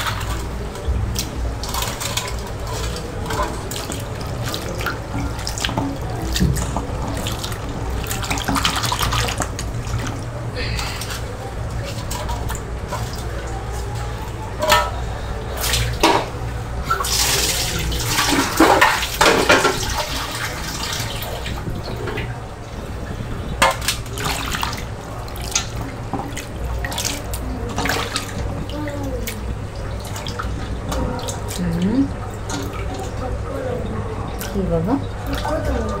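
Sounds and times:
water sloshing in steel bowl: 0.0 - 36.0.

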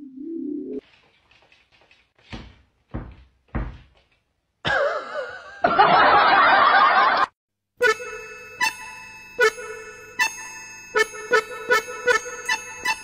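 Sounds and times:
low thumps: 2.3 - 4.2
wavering squeal: 7.8 - 13.0.

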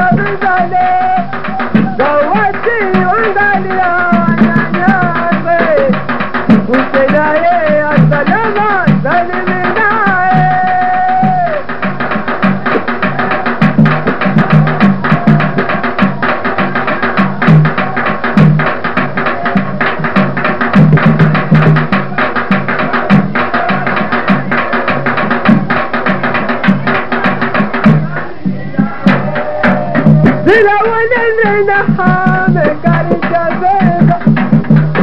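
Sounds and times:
drum dance music: 0.0 - 35.0
sharp wooden strikes: 10.7 - 35.0.

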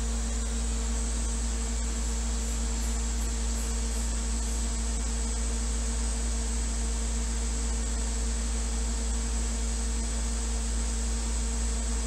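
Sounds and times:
machine fans and electronics humming: 0.0 - 12.0.

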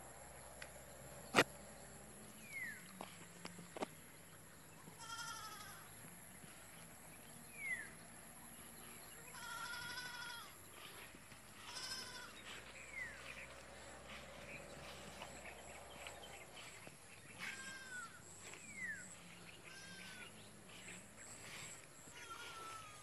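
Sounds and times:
goat bleating: 5.0 - 5.8, 9.3 - 10.6, 11.6 - 12.5, 17.4 - 18.2, 19.6 - 20.4, 22.1 - 23.0.

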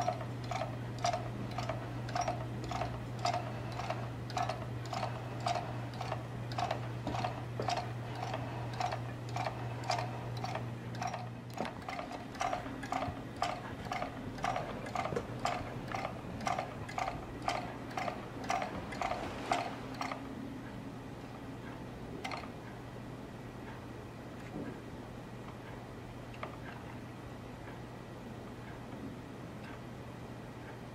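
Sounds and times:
magnet motor ticking: 0.0 - 20.2.

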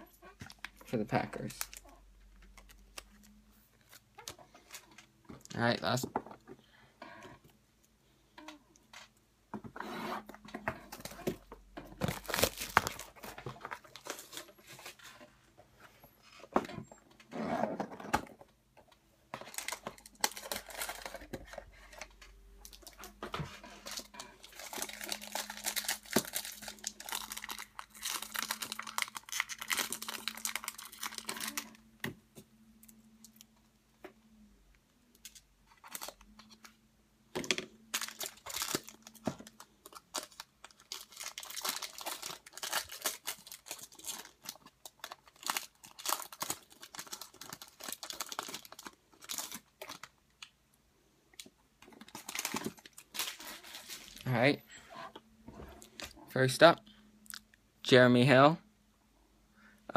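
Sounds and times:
foil wrapper tearing and crinkling: 12.0 - 13.2, 19.5 - 21.2, 23.8 - 31.8, 37.9 - 50.1.

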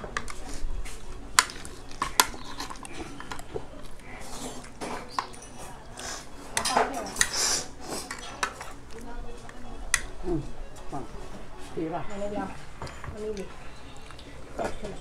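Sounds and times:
spoon clinking on dishes: 1.4 - 4.0, 4.6 - 7.4, 8.0 - 10.2
spoon scraping a plate: 1.4 - 8.8.

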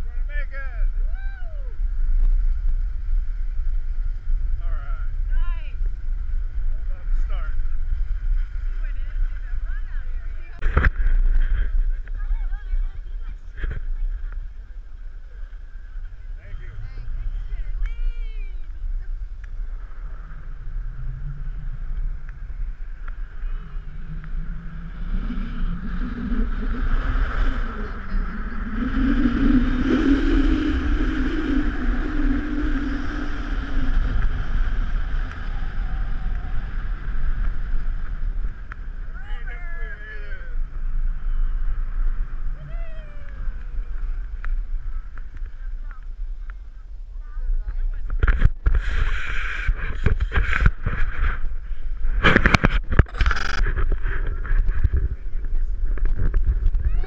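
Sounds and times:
wind buffeting microphone: 0.0 - 57.0
snow tubes scraping over snow: 1.8 - 46.4, 48.7 - 57.0.

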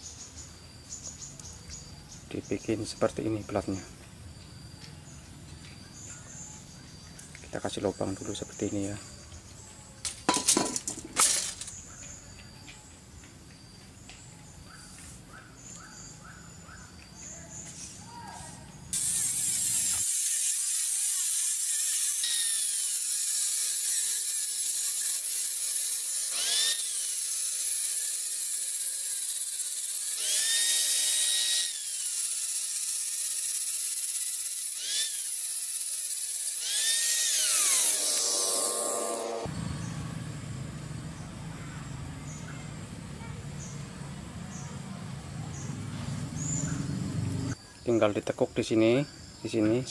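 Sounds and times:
angle grinder cutting steel: 10.3 - 11.8, 18.9 - 39.5.

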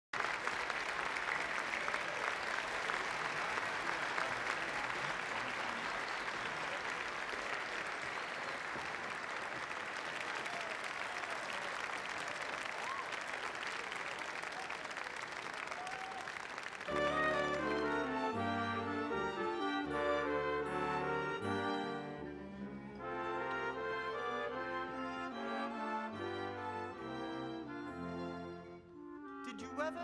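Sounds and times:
crowd applauding: 0.1 - 22.2.

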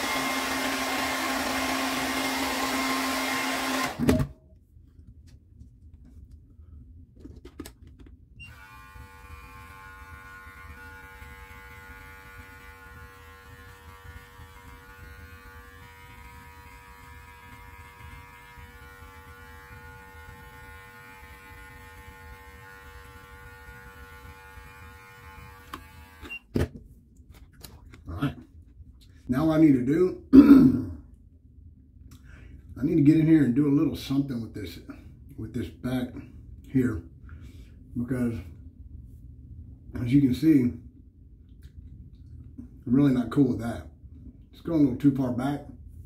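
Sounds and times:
electric beard clippers humming: 0.0 - 4.3, 8.4 - 26.3.

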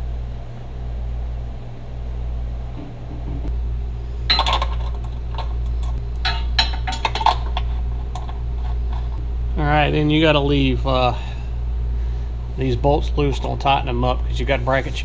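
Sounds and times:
steady low hum: 0.0 - 15.0
metal bolts clinking and scraping: 4.3 - 9.2.

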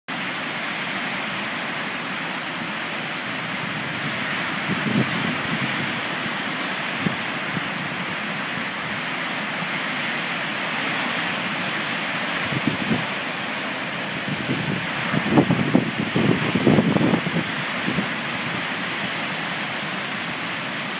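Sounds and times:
waves breaking on shore: 0.1 - 20.9
wind buffeting microphone: 3.3 - 8.7, 12.3 - 19.2.

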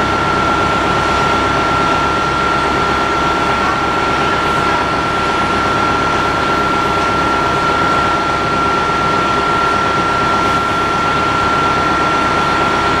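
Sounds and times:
diesel bus engine idling: 0.0 - 13.0.

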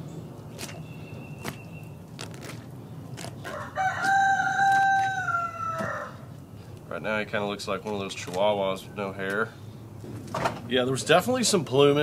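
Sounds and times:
rooster crowing: 3.4 - 6.3.

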